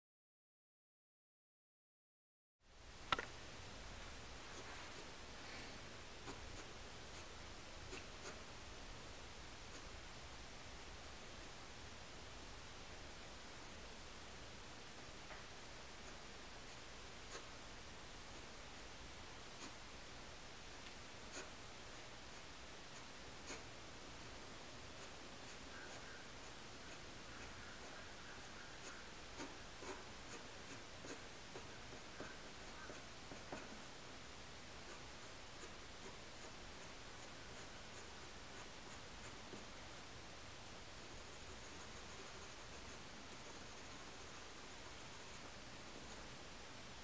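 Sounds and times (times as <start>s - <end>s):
low hiss: 2.6s - 47.0s
pencil scratching on paper: 4.5s - 5.2s, 6.1s - 8.6s, 9.6s - 10.0s, 15.9s - 17.6s, 18.2s - 19.8s, 21.3s - 34.0s, 34.7s - 39.8s, 41.0s - 46.4s
pencil point ticking on paper: 6.2s - 8.5s, 25.0s - 34.0s, 41.1s - 46.2s.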